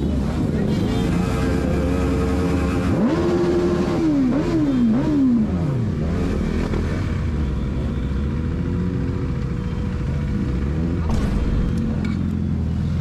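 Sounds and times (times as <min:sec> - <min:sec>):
motorcycle engine revving: 0:00.1 - 0:07.6.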